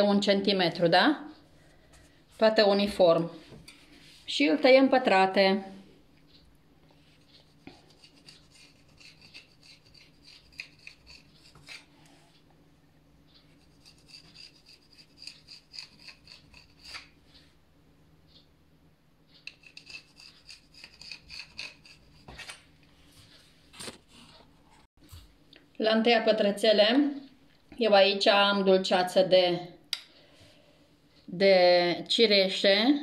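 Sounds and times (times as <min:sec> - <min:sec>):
knife scraping on counter: 0:07.0 - 0:12.2, 0:13.4 - 0:17.2, 0:19.4 - 0:22.6.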